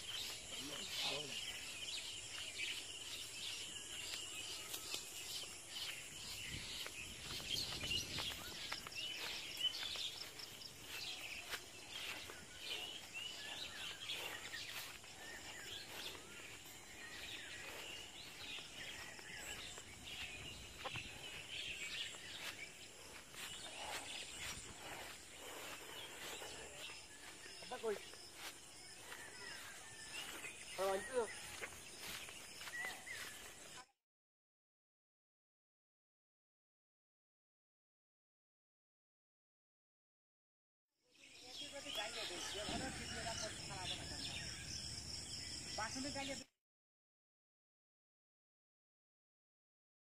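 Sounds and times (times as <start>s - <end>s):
small birds chirping: 0.0s - 33.9s, 41.1s - 46.5s.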